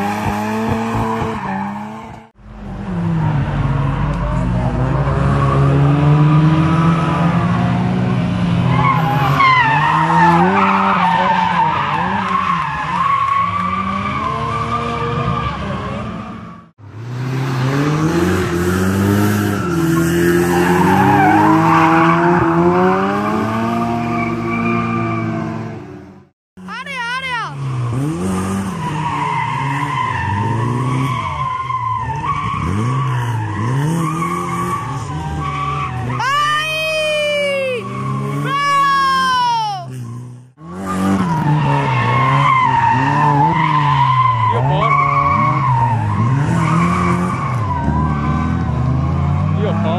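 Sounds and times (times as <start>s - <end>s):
car engine revving: 0.0s - 26.3s, 27.5s - 36.2s, 39.9s - 49.9s
car engine revving hard: 16.9s - 25.8s, 27.6s - 31.3s.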